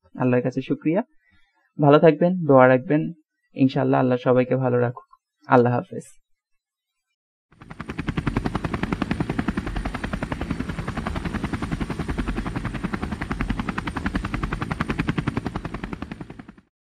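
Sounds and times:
propeller aircraft engine drone: 7.5s - 16.7s.

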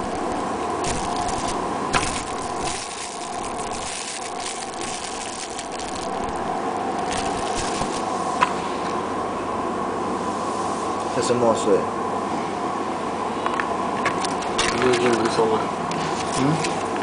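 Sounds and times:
plastic bag crinkling: 0.0s - 8.2s
steady background hum: 0.0s - 17.0s.

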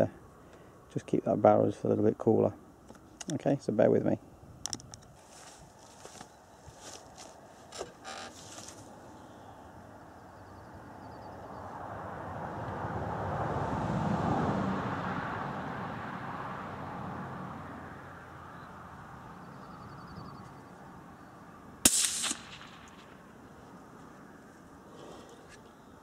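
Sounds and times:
rifle shot: 21.8s - 23.3s.

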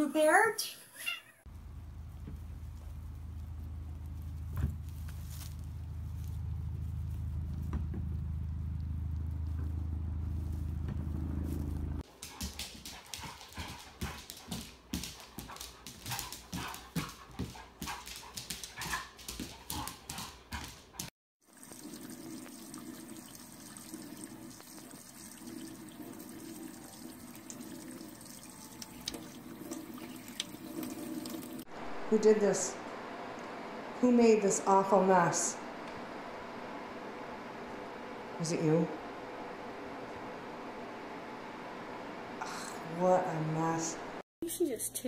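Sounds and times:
low steady rumble: 1.5s - 12.0s
tap water running into sink: 21.5s - 31.7s.

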